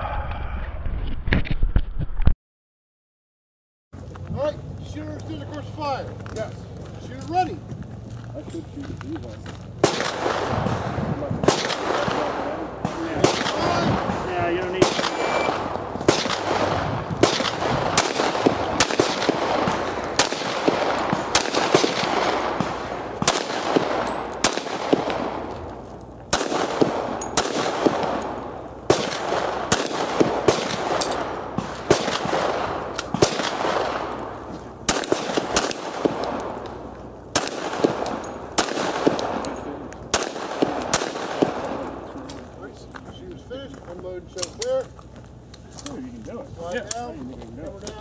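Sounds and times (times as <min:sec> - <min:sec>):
pistol shots with echo: 0:09.8 - 0:42.4.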